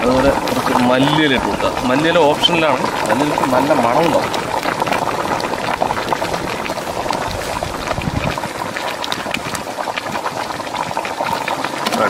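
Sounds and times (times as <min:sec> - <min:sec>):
curry bubbling in a pot: 0:00.0 - 0:12.0.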